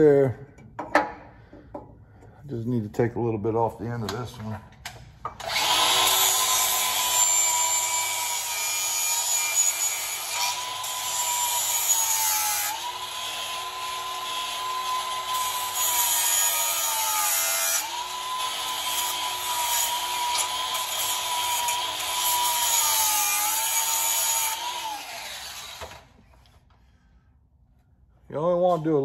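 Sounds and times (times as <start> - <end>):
grinder whining on metal: 5.4 - 26.2.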